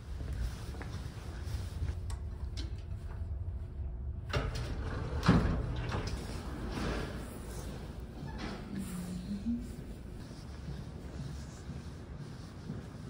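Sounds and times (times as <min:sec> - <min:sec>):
footsteps: 0:00.0 - 0:02.0, 0:06.8 - 0:13.0
low rumble: 0:00.0 - 0:10.4.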